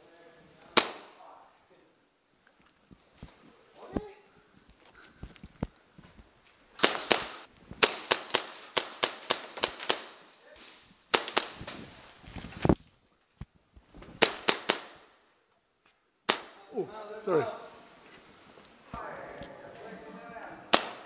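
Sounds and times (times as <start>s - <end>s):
airsoft guns firing: 0.7s - 1.2s, 6.8s - 12.1s, 14.2s - 15.2s, 16.3s - 16.7s, 20.7s - 21.0s.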